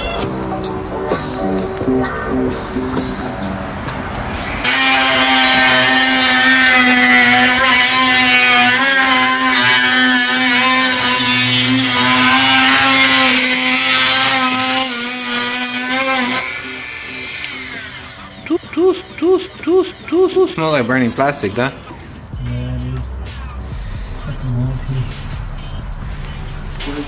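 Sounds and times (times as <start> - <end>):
power tool cutting plastic: 4.4 - 19.0.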